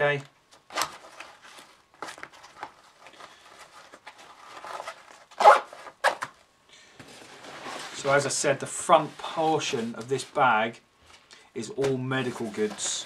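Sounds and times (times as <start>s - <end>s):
nylon pouch rustling: 0.6s - 6.3s.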